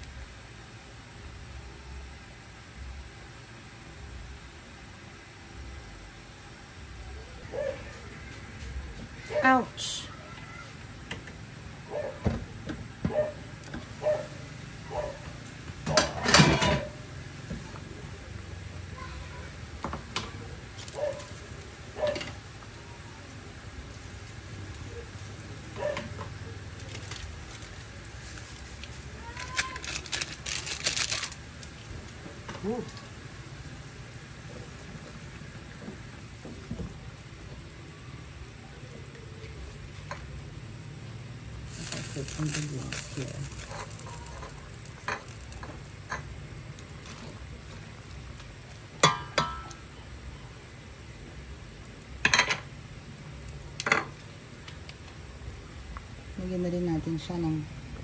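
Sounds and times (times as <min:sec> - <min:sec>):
broth simmering in a pot: 0:00.0 - 0:57.4
pot lid clattering: 0:15.9 - 0:17.0.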